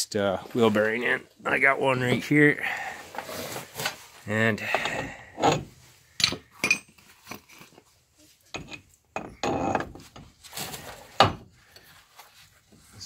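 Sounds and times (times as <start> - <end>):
metal tools clinking: 6.2 - 7.6.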